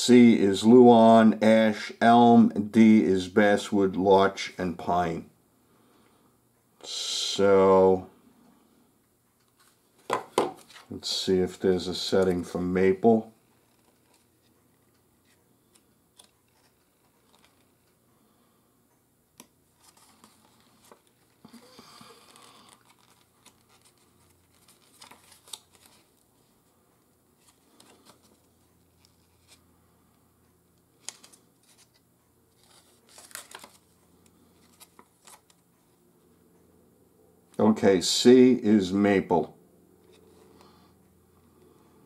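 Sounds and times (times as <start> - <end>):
paper booklet pages rustling: 9.4 - 17.9, 19.7 - 26.2, 27.4 - 29.6, 31.0 - 36.0.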